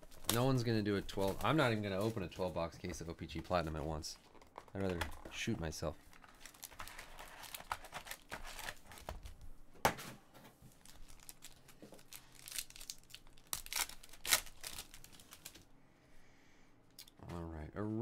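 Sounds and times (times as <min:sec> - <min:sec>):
foil packs crinkling: 0:06.1 - 0:09.3, 0:10.7 - 0:15.6
foil wrapper tearing: 0:10.8 - 0:15.6.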